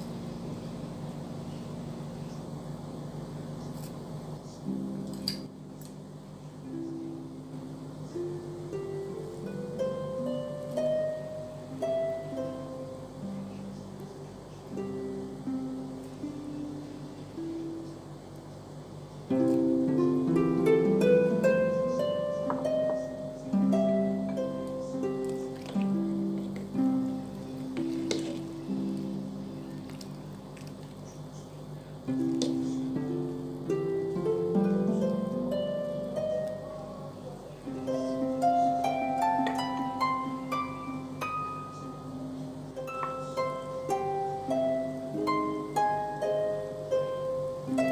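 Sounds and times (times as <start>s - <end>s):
light instrumental music: 0.0s - 47.9s.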